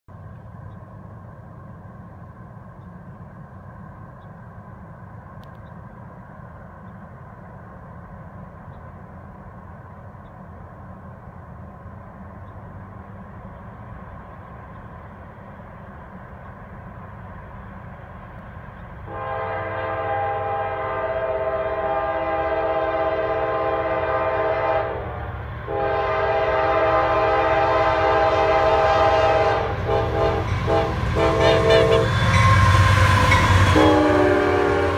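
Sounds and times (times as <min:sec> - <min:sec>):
low steady train rumble: 0:00.1 - 0:34.9
locomotive air horn blasts: 0:19.1 - 0:34.9.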